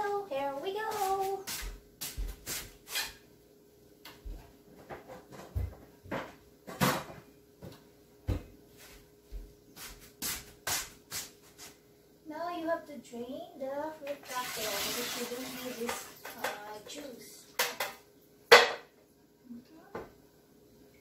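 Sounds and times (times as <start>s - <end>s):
kitchen knocks and thumps: 4.3s - 8.5s, 17.6s - 18.9s.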